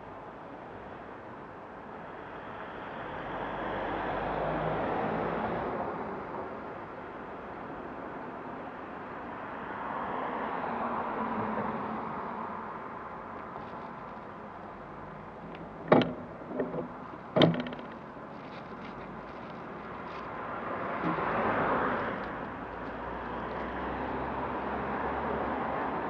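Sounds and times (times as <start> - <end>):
road traffic noise: 0.0 - 26.0
sharp knocks: 15.6 - 18.1
car passing: 17.5 - 26.0.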